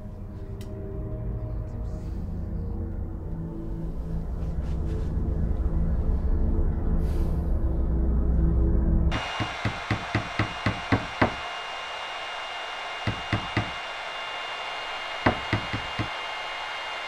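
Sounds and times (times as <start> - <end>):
hammer knocking on wood: 9.1 - 11.4, 13.0 - 13.8, 15.2 - 16.2.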